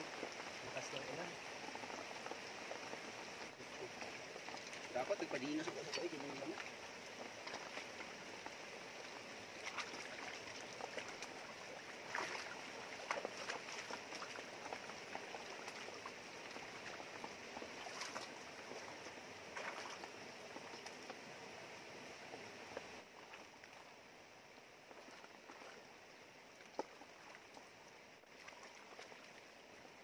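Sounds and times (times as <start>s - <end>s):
river running over rocks: 0.0s - 30.0s
water splashes: 0.0s - 30.0s.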